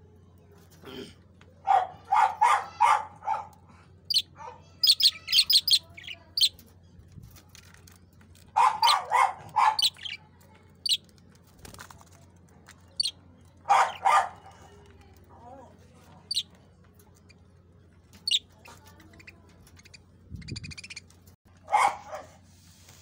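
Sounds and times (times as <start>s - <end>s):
budgerigars twittering: 4.1s - 6.6s, 8.6s - 10.2s, 12.9s - 14.2s, 16.3s - 16.5s, 18.1s - 21.1s
lower-pitched bird calls: 4.1s - 6.6s, 8.7s - 10.2s.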